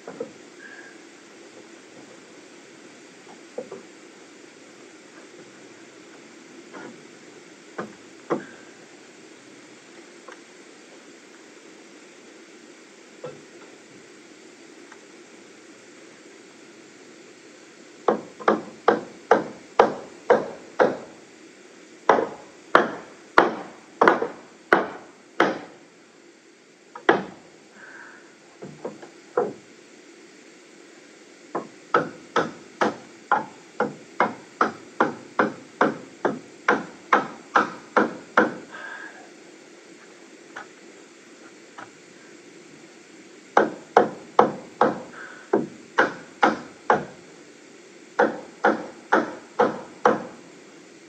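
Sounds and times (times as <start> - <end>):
hammer driving nails into wood: 18.1 - 21.1, 22.1 - 25.7, 31.6 - 38.6, 43.6 - 47.2, 48.2 - 50.3.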